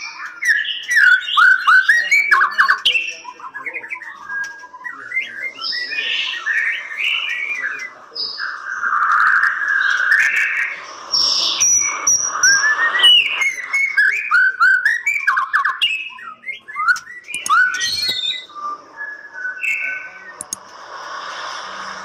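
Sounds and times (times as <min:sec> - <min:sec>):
bird singing whistles and clicks: 0:00.0 - 0:10.7, 0:11.6 - 0:20.7.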